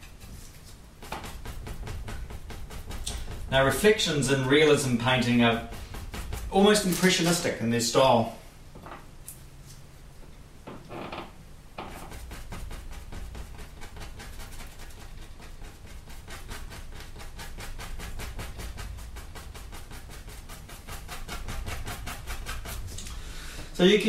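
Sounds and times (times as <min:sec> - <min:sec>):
paintbrush swishing on canvas: 0:00.0 - 0:07.7, 0:11.9 - 0:23.0.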